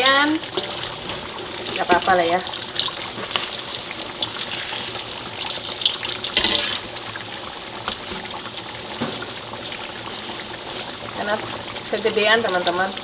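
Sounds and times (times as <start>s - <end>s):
utensils clicking and scraping wok: 0.0s - 5.1s, 5.8s - 7.0s
omelette frying in hot oil: 0.0s - 13.0s.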